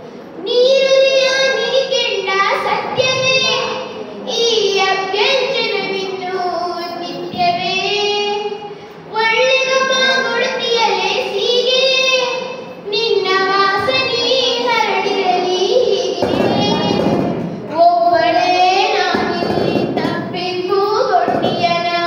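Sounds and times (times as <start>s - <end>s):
girl singing into a microphone: 0.4s - 22.0s.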